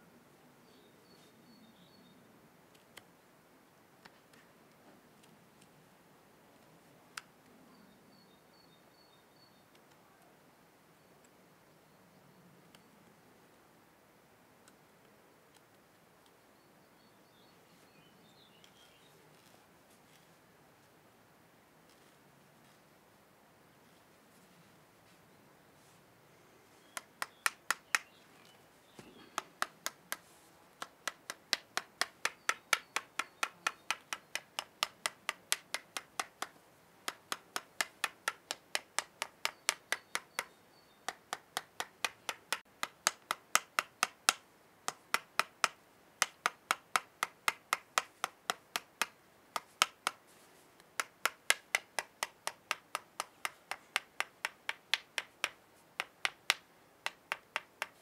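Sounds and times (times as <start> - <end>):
knife handle tapping bark: 30.8 - 36.5, 37.1 - 50.2.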